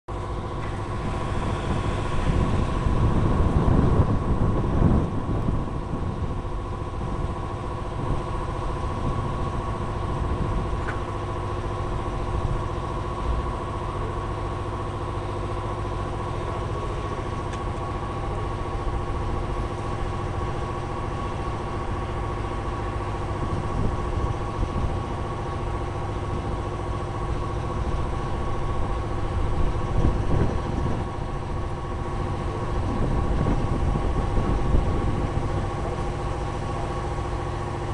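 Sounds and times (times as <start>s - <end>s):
air compressor running: 0.6s - 5.4s.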